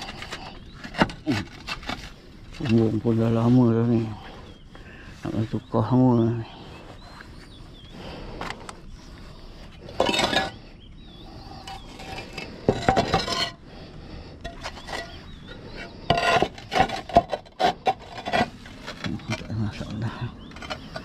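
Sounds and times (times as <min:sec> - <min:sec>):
roof tiles scraping and knocking: 0:00.0 - 0:03.6, 0:09.8 - 0:10.6, 0:11.6 - 0:13.6, 0:14.4 - 0:21.0.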